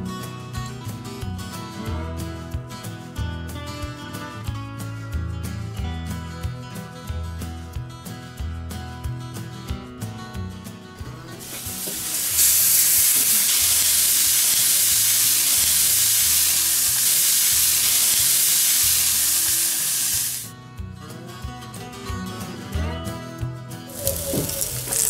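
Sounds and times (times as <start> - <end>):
steak sizzling on grill: 11.4 - 20.5, 23.9 - 25.0.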